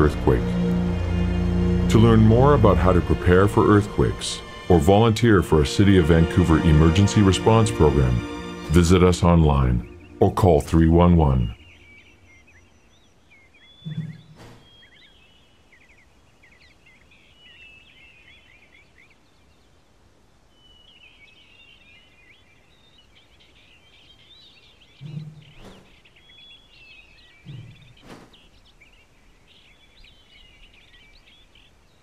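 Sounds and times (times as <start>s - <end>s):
small birds chirping: 0.0s - 32.0s
dull thuds: 13.8s - 14.8s, 25.0s - 26.0s, 27.4s - 28.5s.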